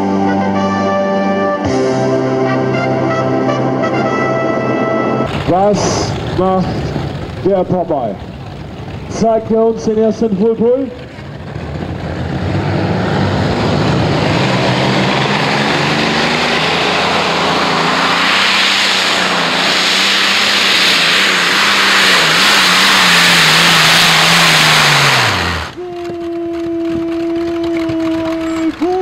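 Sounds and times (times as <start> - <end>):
tractor engines roaring under load: 3.8 - 29.0.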